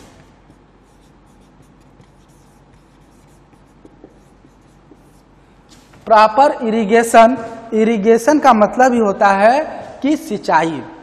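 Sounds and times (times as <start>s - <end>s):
marker scratching on whiteboard: 0.0s - 6.1s.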